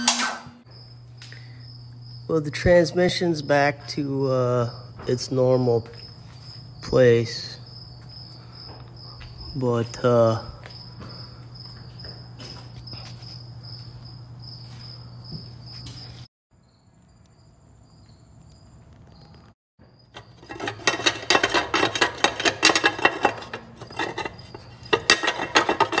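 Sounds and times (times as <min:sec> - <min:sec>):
crickets chirping: 0:00.6 - 0:26.0
metallic clinking and clattering: 0:20.1 - 0:26.0.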